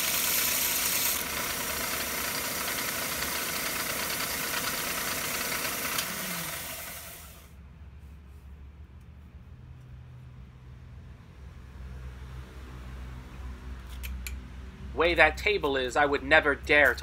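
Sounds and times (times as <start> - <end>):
belt sander grinding steel: 0.0 - 7.5
belt sander motor whirring: 0.0 - 7.5.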